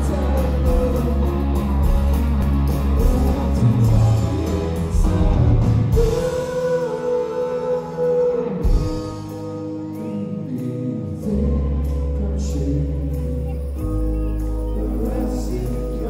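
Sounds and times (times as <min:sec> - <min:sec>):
live rock band: 0:00.0 - 0:16.0.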